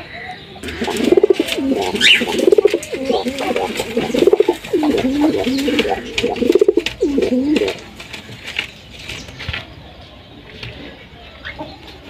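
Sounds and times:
pigeon cooing: 0:00.6 - 0:07.9
wing flutters: 0:00.6 - 0:09.4.

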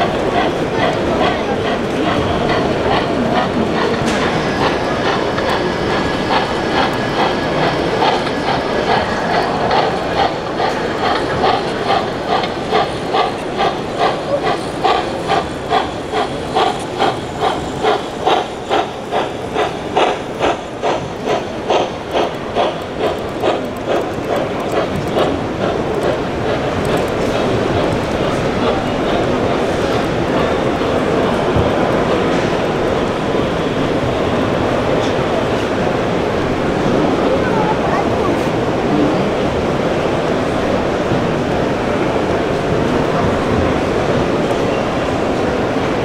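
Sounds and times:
model steam locomotive chuffing: 0:00.0 - 0:46.0
steady background noise: 0:00.0 - 0:46.0.

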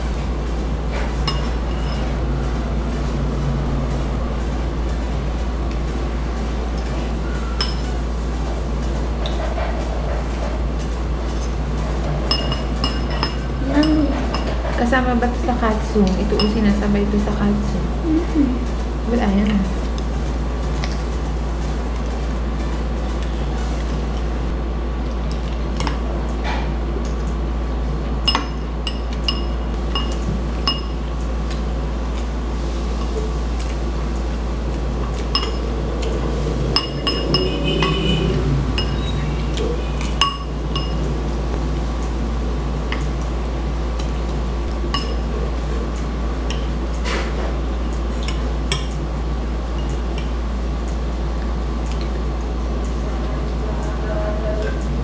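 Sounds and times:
low hum: 0:00.0 - 0:55.0
cutlery clinking against a bowl: 0:07.6 - 0:08.0, 0:12.3 - 0:14.8, 0:28.3 - 0:31.0, 0:35.2 - 0:35.7, 0:36.8 - 0:39.0, 0:40.0 - 0:41.1, 0:44.9 - 0:45.3.

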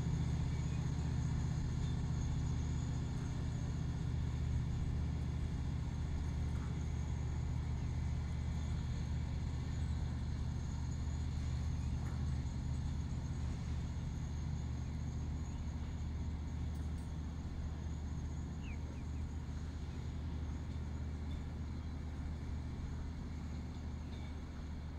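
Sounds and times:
diesel engine droning: 0:00.0 - 0:24.9.

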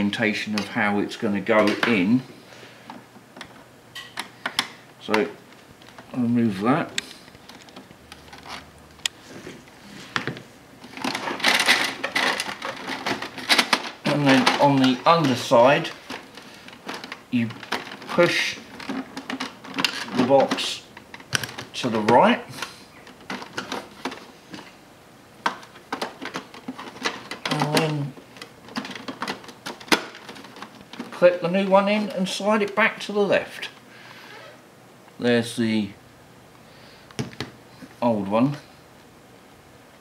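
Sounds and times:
plastic clicks and knocks: 0:25.4 - 0:31.2.

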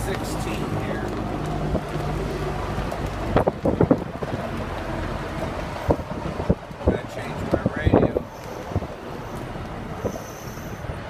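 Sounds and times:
trolley car rumbling on rails: 0:00.0 - 0:11.0
wind rushing through window: 0:00.0 - 0:11.0.

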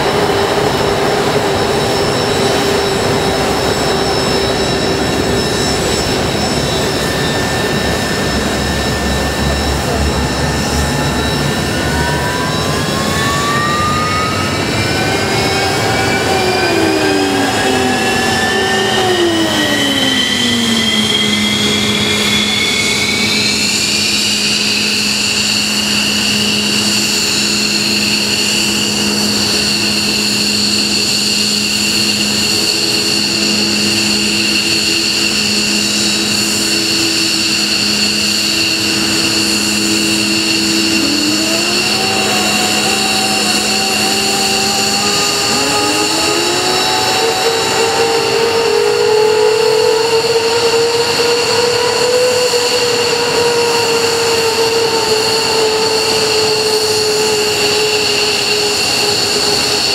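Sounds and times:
jet engine whine spooling up: 0:00.0 - 0:59.9
low engine tones: 0:00.0 - 0:59.9.

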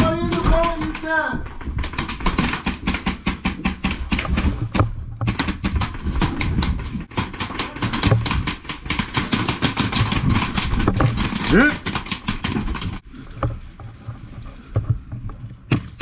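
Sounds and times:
rapid airsoft gunfire: 0:00.0 - 0:04.6, 0:05.3 - 0:13.0.

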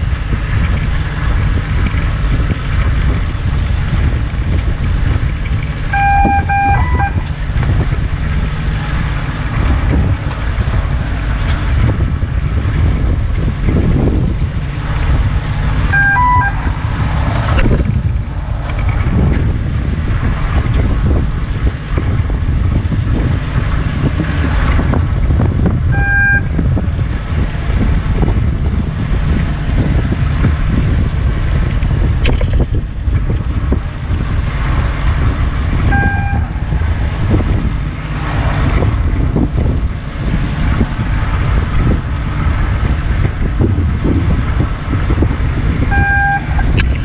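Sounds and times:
sea: 0:00.0 - 0:19.4, 0:20.0 - 0:47.0
boat engine drone: 0:00.0 - 0:47.0
wind buffeting microphone: 0:00.0 - 0:47.0
short electronic beep: 0:05.9 - 0:07.3, 0:15.9 - 0:16.8, 0:26.0 - 0:26.5, 0:35.9 - 0:36.5, 0:45.9 - 0:46.7.

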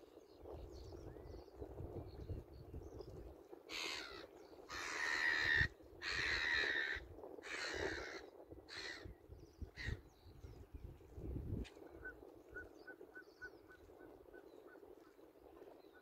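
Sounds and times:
crow cawing: 0:03.7 - 0:09.1.

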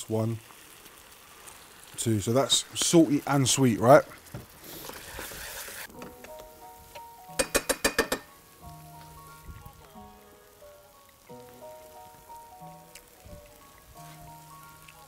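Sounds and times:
sauce sizzling in a frying pan: 0:00.0 - 0:15.0
background music with held notes: 0:05.9 - 0:15.0.

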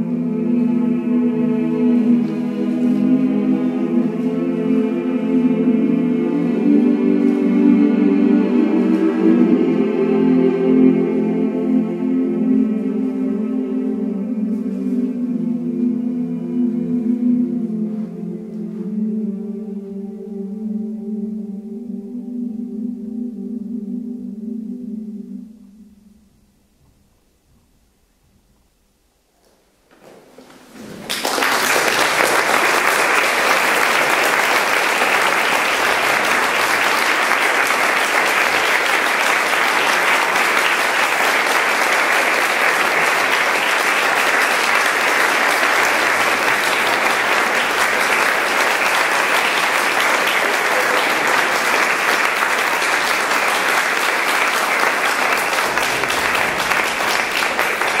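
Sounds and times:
audience applauding: 0:30.0 - 0:58.0.

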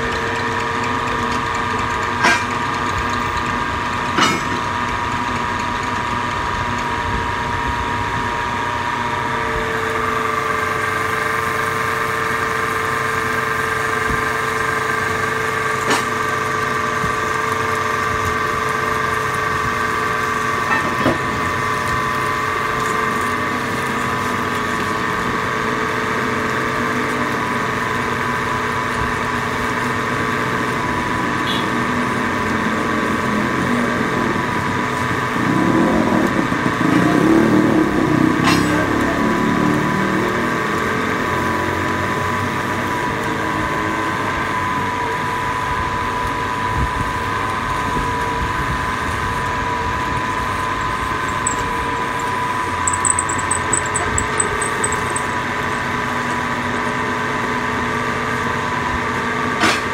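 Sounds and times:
metal lathe running: 0:00.0 - 0:33.5, 0:50.0 - 0:56.6.

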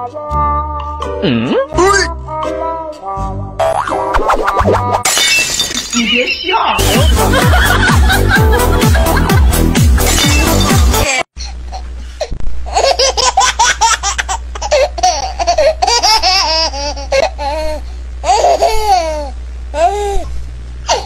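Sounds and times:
steady low hum: 0:06.8 - 0:21.0
baby laughing and squealing: 0:12.7 - 0:20.0.

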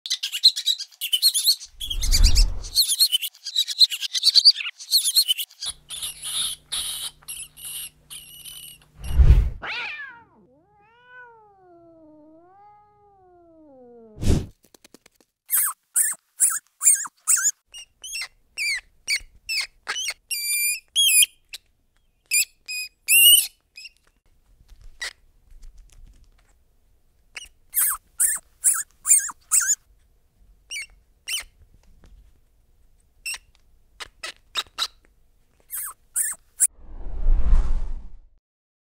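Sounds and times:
rodent squeaking: 0:00.1 - 0:09.0, 0:15.5 - 0:21.7, 0:22.3 - 0:24.1, 0:27.4 - 0:29.8, 0:30.7 - 0:31.6, 0:33.2 - 0:35.0, 0:35.6 - 0:36.7.

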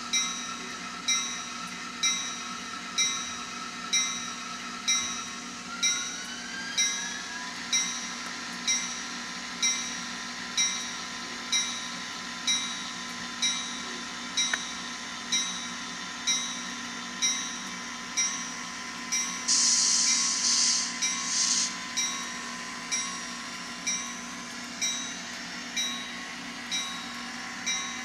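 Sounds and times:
locomotive bell ringing: 0:00.1 - 0:06.2, 0:06.8 - 0:19.7, 0:20.9 - 0:21.3, 0:21.9 - 0:28.0
rising whine: 0:19.1 - 0:25.1.

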